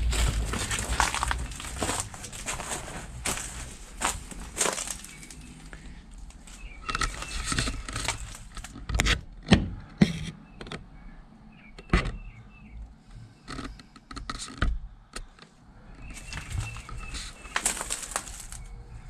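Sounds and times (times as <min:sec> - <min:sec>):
footsteps on leaf litter: 0:00.0 - 0:08.5, 0:16.1 - 0:18.8
faint bird chirps: 0:10.4 - 0:13.5.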